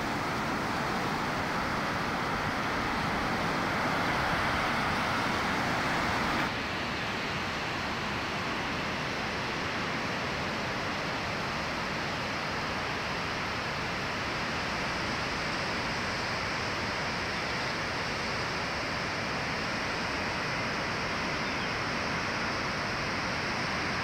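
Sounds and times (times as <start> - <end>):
ocean surf breaking: 0.0 - 6.5.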